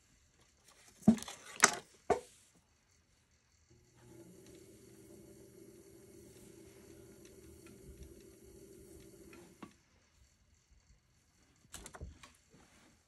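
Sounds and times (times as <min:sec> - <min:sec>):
pottery wheel motor humming: 0:03.6 - 0:10.2.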